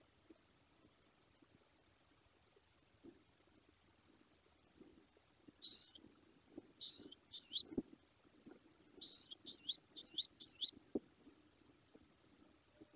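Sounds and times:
eagle whistled calls: 0:05.6 - 0:06.0, 0:06.8 - 0:07.8, 0:09.0 - 0:10.8.

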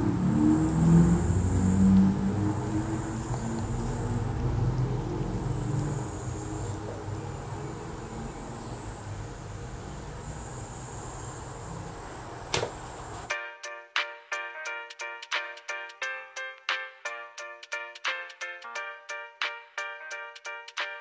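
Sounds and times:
insect chorus: 0:00.0 - 0:13.3
vehicle engine rumble: 0:00.0 - 0:13.3.

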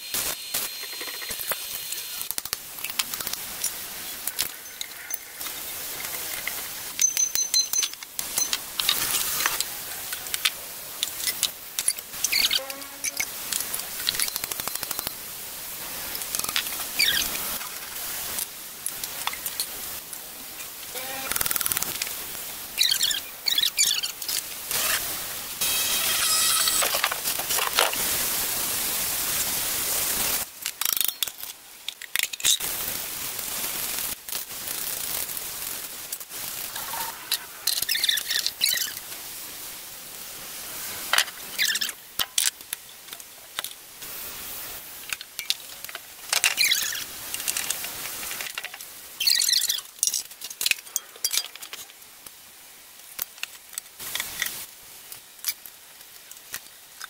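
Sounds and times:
steady hiss: 0:00.0 - 0:57.0
metal parts clicking and knocking: 0:02.2 - 0:09.6, 0:30.6 - 0:32.6
metallic squeaks and scrapes: 0:12.2 - 0:13.3, 0:25.6 - 0:27.0.

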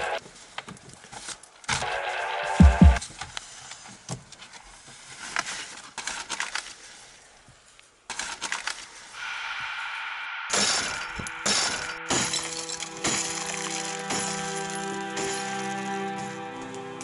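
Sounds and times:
paper rustling and crinkling: 0:03.0 - 0:09.1.

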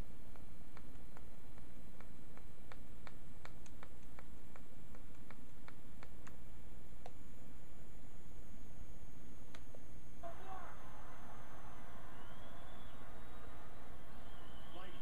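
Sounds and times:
light regular ticking: 0:00.0 - 0:06.4
steady low hum: 0:00.0 - 0:15.0.

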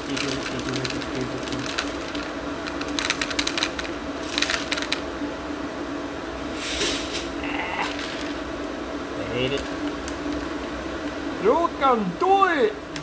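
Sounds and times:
corn kernels rattling into pan: 0:00.0 - 0:05.0
low hum: 0:00.0 - 0:13.0.

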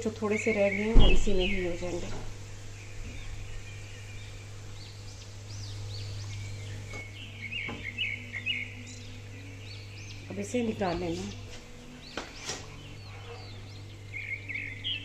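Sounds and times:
small birds chirping: 0:00.0 - 0:15.0
steady low hum: 0:00.0 - 0:15.0.

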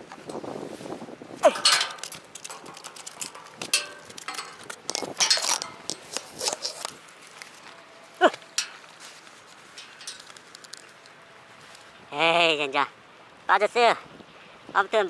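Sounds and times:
metallic clicks from rod and reel: 0:01.6 - 0:07.6.

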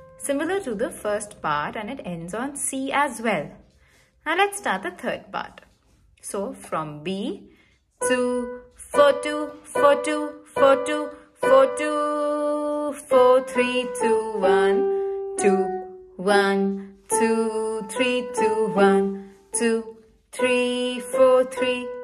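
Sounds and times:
digital keyboard slow melody: 0:00.0 - 0:00.3.

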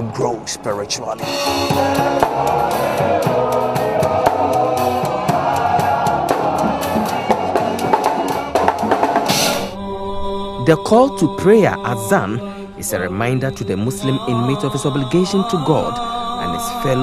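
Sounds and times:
drums and percussion: 0:01.2 - 0:09.8
men singing together: 0:01.2 - 0:17.0.

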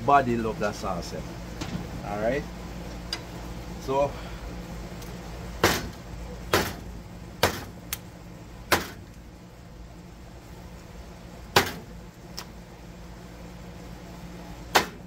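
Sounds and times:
cleaver chopping on wooden board: 0:05.6 - 0:05.9, 0:06.5 - 0:06.8, 0:07.4 - 0:07.7, 0:14.8 - 0:15.0.

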